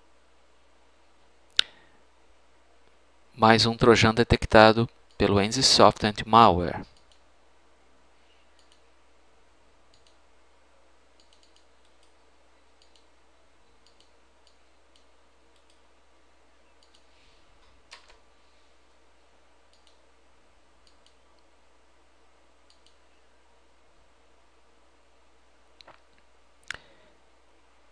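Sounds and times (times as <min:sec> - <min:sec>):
computer mouse clicks: 0:06.9 - 0:07.2, 0:08.6 - 0:08.9, 0:09.9 - 0:10.2, 0:11.2 - 0:12.2, 0:12.8 - 0:13.1, 0:13.8 - 0:15.8, 0:16.8 - 0:18.2, 0:19.7 - 0:20.0, 0:20.8 - 0:21.5, 0:22.7 - 0:23.0.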